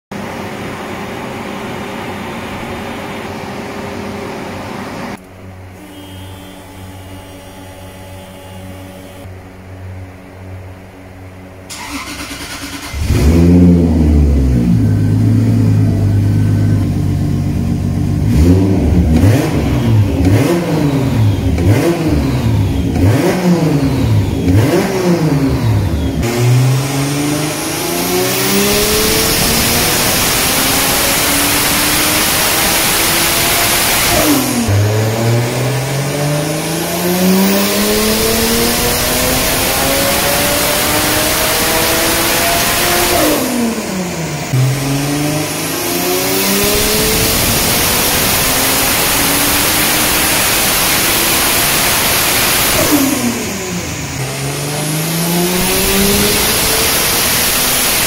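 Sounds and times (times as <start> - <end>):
car engine revving: 11.7 - 58.0.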